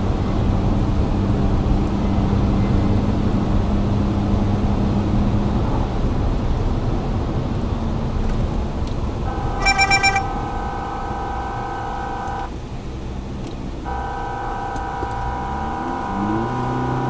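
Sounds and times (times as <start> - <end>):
vehicle engine and road rumble: 0.0 - 17.0
vehicle horn: 9.3 - 12.5, 13.9 - 17.0.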